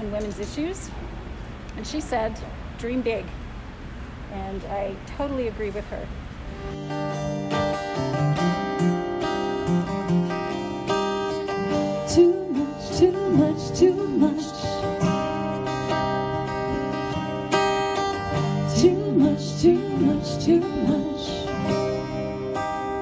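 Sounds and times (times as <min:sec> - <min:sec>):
acoustic guitars strumming: 0:06.5 - 0:23.0
woman singing wordless phrases: 0:12.0 - 0:15.0, 0:18.7 - 0:21.7.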